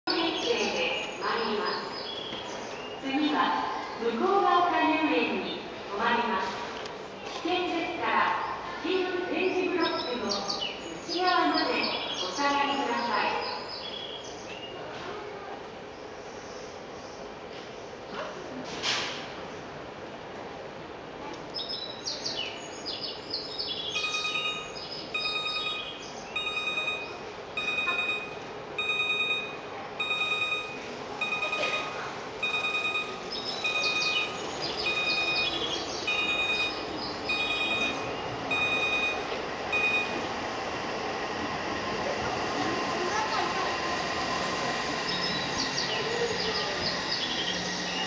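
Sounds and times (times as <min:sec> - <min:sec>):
repeating electronic warning tone: 0:24.0 - 0:40.3
bird-like chirps: 0:33.3 - 0:38.3.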